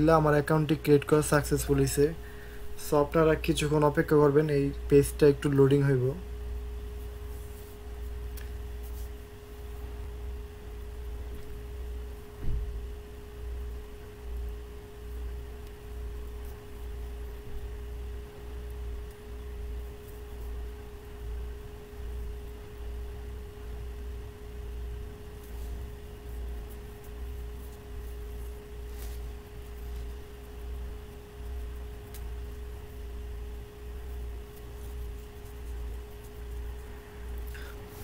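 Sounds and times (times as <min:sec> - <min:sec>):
steady hum: 0:00.0 - 0:38.0.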